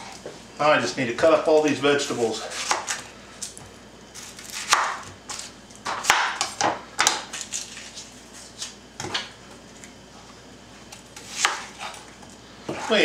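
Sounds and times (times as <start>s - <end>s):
knife chopping on wooden board: 2.5s - 3.0s, 4.2s - 7.3s, 11.2s - 12.0s, 12.7s - 13.0s.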